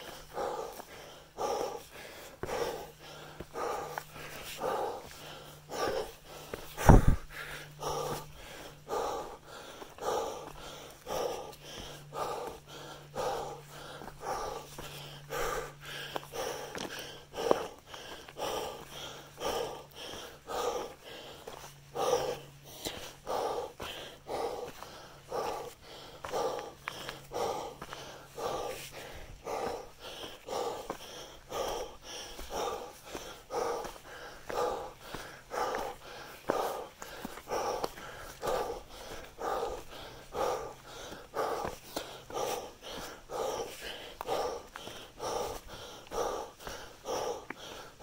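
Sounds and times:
heavy breathing: 0.0 - 48.0
loud thump: 6.8 - 7.2.

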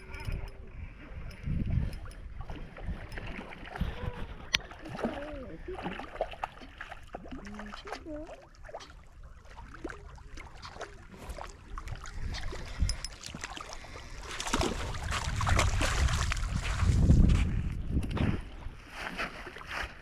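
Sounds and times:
wind buffeting microphone: 0.0 - 5.7, 11.8 - 19.0
light water sounds: 0.0 - 20.0.

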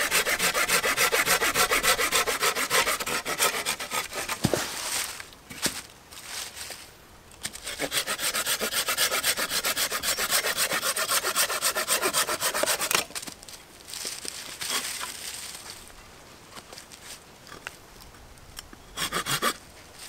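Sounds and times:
hand saw cutting wood: 0.0 - 4.8, 7.5 - 13.1, 19.0 - 19.6
rustling and handling: 4.2 - 7.6, 13.0 - 17.8.

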